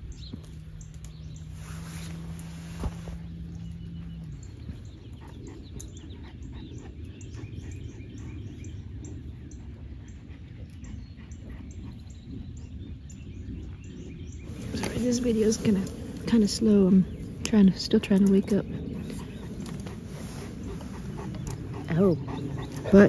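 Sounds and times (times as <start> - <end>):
small birds chirping: 0.0 - 23.0
steady low rumble: 0.0 - 23.0
branches rustling: 0.9 - 4.0, 14.4 - 21.7.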